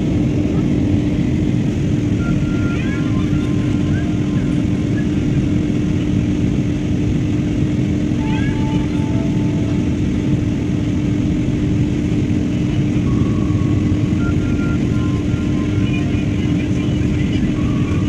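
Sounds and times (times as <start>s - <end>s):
airliner cabin engine roar: 0.0s - 18.0s
constant low hum: 0.0s - 18.0s.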